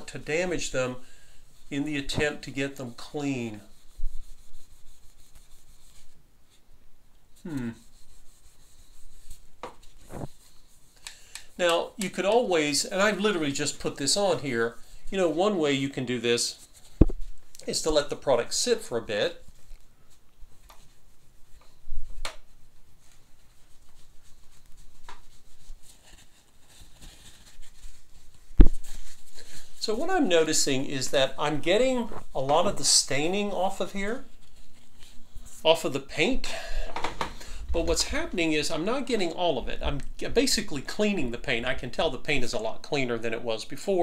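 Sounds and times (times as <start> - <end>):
cloth wipe swishing: 0.0 - 6.6, 7.4 - 36.2
paper towel rubbing on metal: 1.6 - 6.6, 7.4 - 36.3.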